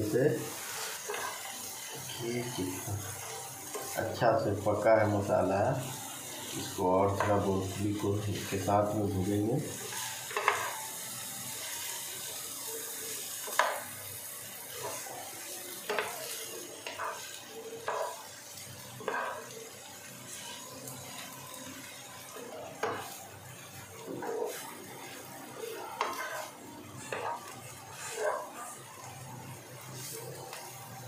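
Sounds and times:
vegetables sizzling in a pan: 0.0 - 31.0
wooden spatula scraping a pan: 0.5 - 2.1, 9.8 - 10.8, 16.8 - 17.3, 19.0 - 19.5, 24.0 - 28.6.

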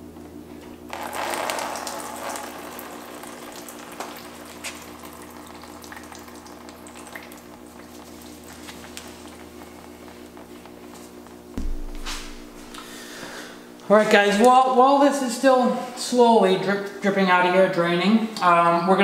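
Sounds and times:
water dripping: 0.9 - 9.7
water pouring into plastic tub: 0.9 - 9.7.

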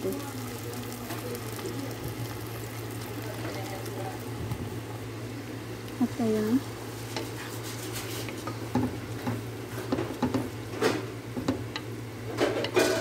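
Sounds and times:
wooden spoon stirring in a pot: 6.0 - 11.9.

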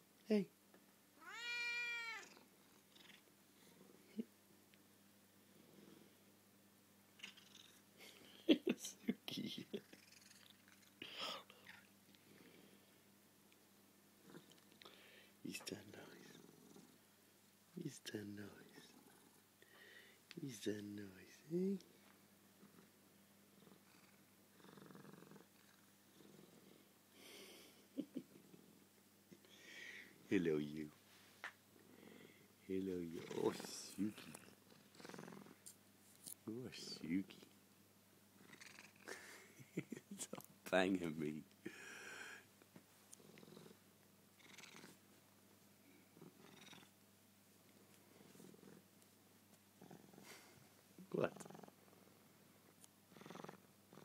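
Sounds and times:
cat purring faintly: 14.2 - 14.9, 15.5 - 17.1, 17.9 - 19.5, 20.5 - 31.0, 31.8 - 35.7, 43.1 - 43.8, 44.4 - 45.0, 45.8 - 47.0, 47.7 - 49.0, 49.7 - 54.0.

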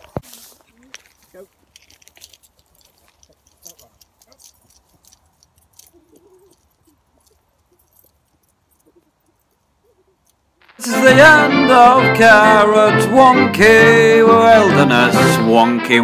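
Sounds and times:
footsteps on grassy path: 0.0 - 6.0.

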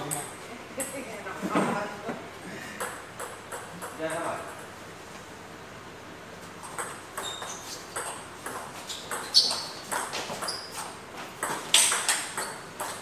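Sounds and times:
table tennis ball hits: 2.8 - 4.1, 6.7 - 10.8, 11.4 - 13.0.

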